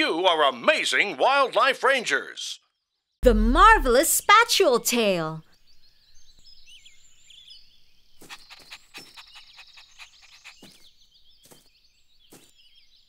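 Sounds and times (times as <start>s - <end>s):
small birds chirping: 2.8s - 13.0s.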